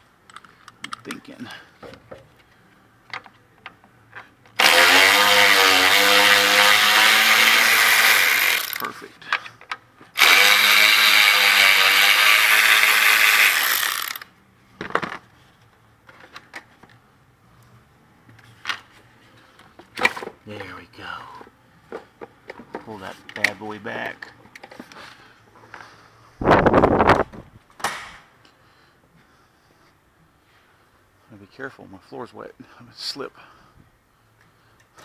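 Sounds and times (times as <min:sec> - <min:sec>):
electric ratchet running: 0:04.6 - 0:08.9, 0:10.2 - 0:14.3.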